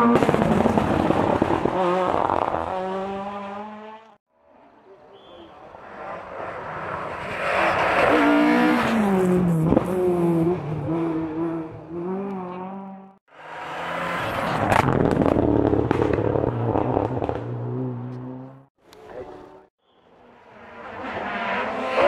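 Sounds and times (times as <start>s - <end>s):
rally car engine at full throttle: 0.0s - 22.0s.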